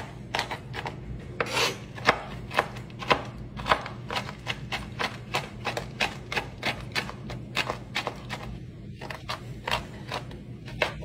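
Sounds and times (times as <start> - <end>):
knife chopping on wooden board: 0.0 - 11.0.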